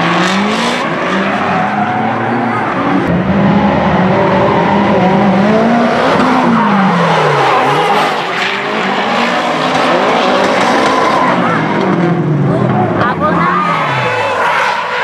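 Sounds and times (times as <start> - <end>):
car engines revving high: 0.0 - 15.0.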